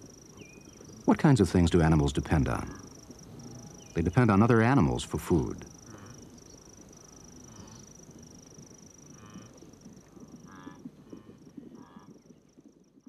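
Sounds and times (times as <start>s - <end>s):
wildebeest calls: 10.4s - 12.2s.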